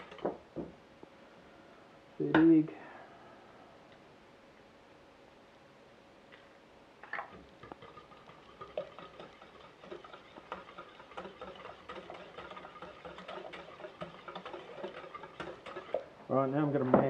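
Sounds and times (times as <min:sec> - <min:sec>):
whisk scraping metal pan: 0:07.6 - 0:16.1.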